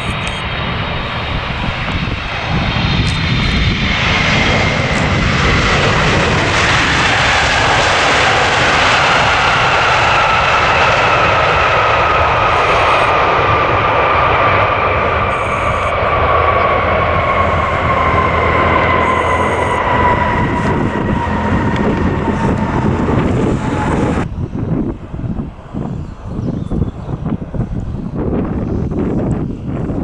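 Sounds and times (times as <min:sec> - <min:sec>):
jet engines roaring: 0:00.0 - 0:30.0
engine whine falling in pitch: 0:12.2 - 0:13.3, 0:14.7 - 0:24.3.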